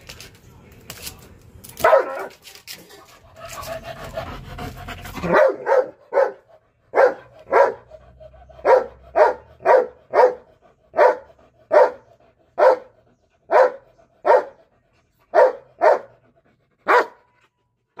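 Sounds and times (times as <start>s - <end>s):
dog barking: 1.8s - 2.3s, 5.2s - 8.0s, 8.6s - 14.6s, 15.3s - 16.2s, 16.8s - 17.3s.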